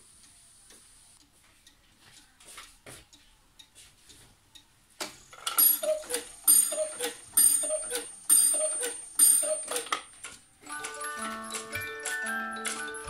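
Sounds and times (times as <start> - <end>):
clock ringing strike: 5.6 - 9.9
music box playing: 5.6 - 10.0, 10.6 - 13.0
cuckoo clock calls: 5.6 - 13.0.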